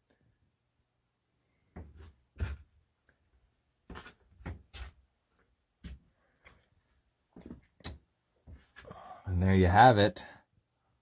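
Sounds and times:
soft thumps and knocks: 0:01.7 - 0:02.7, 0:03.9 - 0:05.0.

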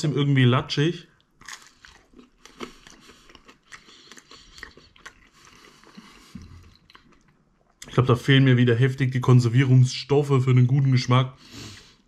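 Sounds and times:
person chewing pizza: 0:01.2 - 0:07.9.

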